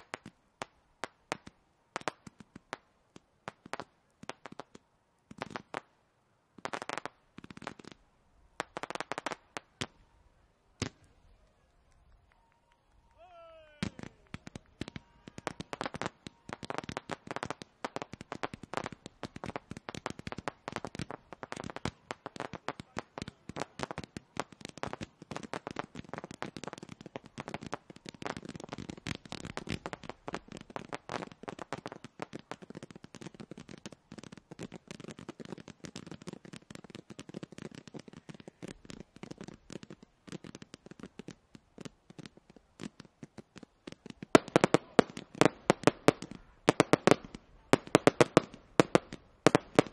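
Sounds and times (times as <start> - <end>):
fireworks crackling: 0.0 - 49.9.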